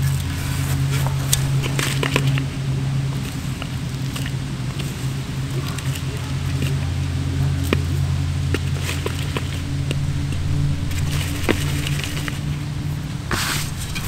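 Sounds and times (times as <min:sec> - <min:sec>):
crackly leaves crunching: 0:00.0 - 0:14.0
low engine hum: 0:00.0 - 0:14.0
shovel scraping soil: 0:13.3 - 0:14.0.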